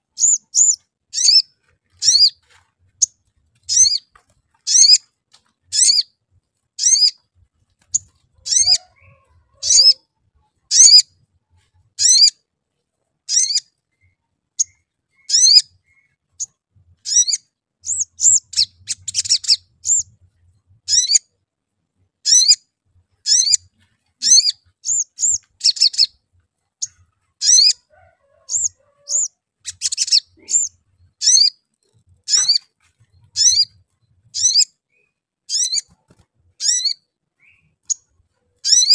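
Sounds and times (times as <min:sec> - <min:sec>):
rapid bird twittering: 0:00.0 - 0:02.4, 0:03.0 - 0:04.1, 0:04.7 - 0:05.1, 0:05.7 - 0:06.1, 0:06.8 - 0:07.2, 0:07.9 - 0:10.0, 0:10.7 - 0:11.1, 0:12.0 - 0:12.3, 0:13.3 - 0:20.1, 0:20.9 - 0:21.2, 0:22.2 - 0:22.6, 0:23.2 - 0:27.9, 0:28.5 - 0:38.9
sunbird chirping: 0:06.8 - 0:07.2.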